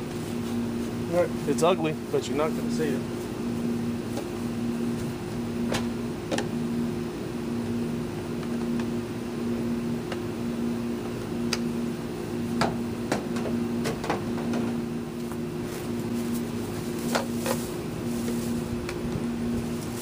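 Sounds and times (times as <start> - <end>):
pulsing mechanical hum: 0.0 - 20.0.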